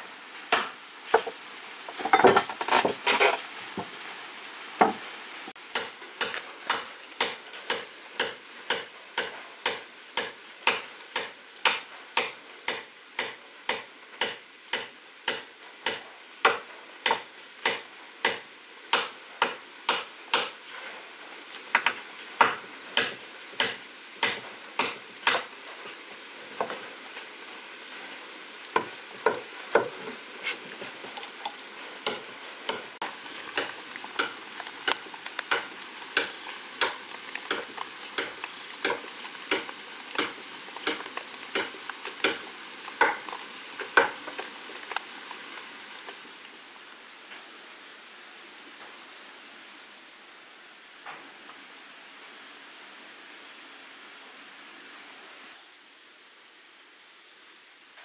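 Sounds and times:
rustling scrape: 1.9 - 4.0, 30.0 - 31.1.

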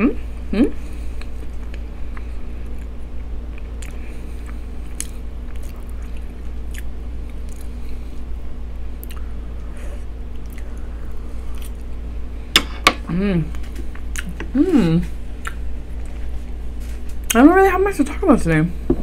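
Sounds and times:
room fan humming: 0.0 - 19.0
close chewing: 1.1 - 7.8.

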